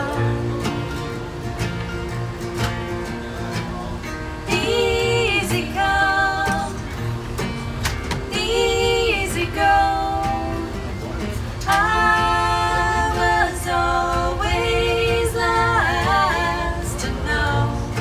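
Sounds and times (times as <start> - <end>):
women singing: 0.0 - 1.1, 4.4 - 7.2, 8.1 - 10.9, 11.6 - 18.0
strummed acoustic guitars: 0.0 - 18.0.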